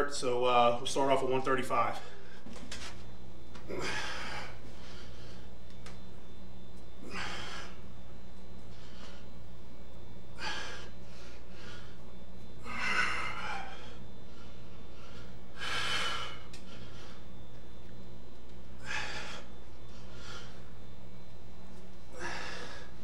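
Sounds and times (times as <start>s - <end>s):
steady low hum: 0.0s - 23.0s
man breathing forcefully: 3.6s - 5.6s, 7.0s - 17.5s, 18.7s - 20.8s, 22.0s - 23.0s.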